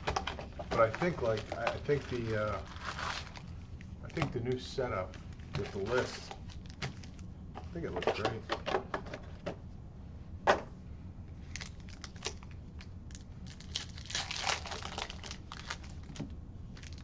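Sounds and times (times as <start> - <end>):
foil wrapper crinkling and tearing: 0.7 - 7.2, 11.4 - 17.0.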